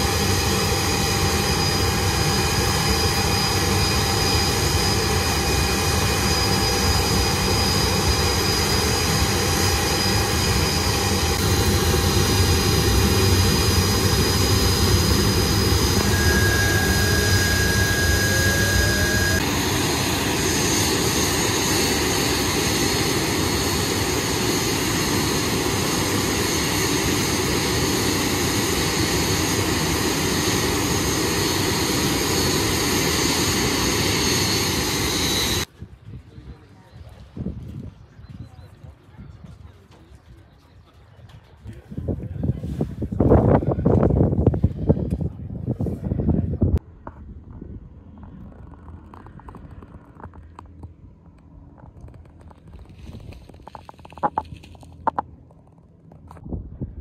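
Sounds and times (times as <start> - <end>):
jet engines whining: 0.0 - 35.7
jet engine low rumble: 0.0 - 57.0.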